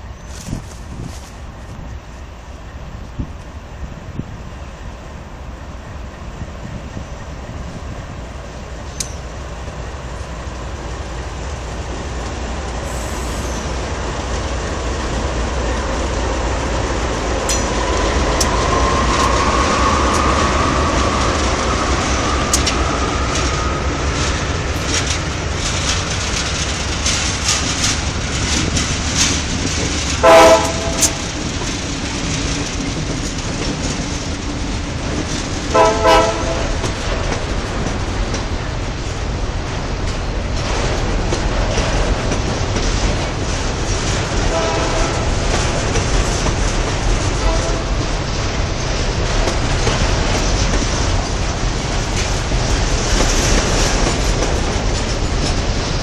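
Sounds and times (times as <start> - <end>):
locomotive rumble and whine: 0.0 - 56.0
wheels clicking over rail joints: 8.4 - 56.0
train horn: 30.2 - 31.3, 35.7 - 37.0, 44.4 - 45.4, 47.3 - 48.1.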